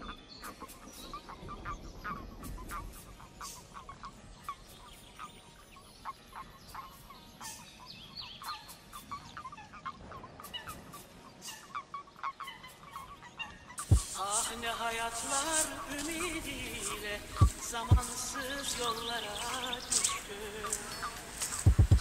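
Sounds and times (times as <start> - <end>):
flock of birds calling: 0.0 - 22.0
high bird twittering: 0.0 - 22.0.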